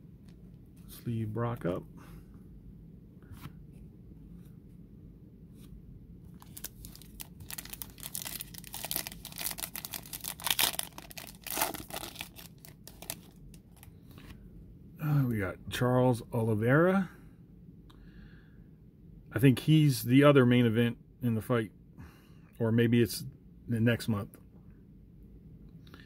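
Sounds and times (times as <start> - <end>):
foil wrapper crinkling and ripping: 6.4 - 13.9.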